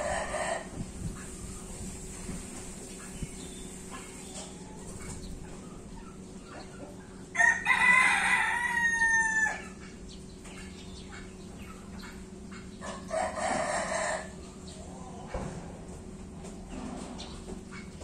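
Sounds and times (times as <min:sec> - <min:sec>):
rooster crowing: 0:07.3 - 0:09.8, 0:13.0 - 0:14.4.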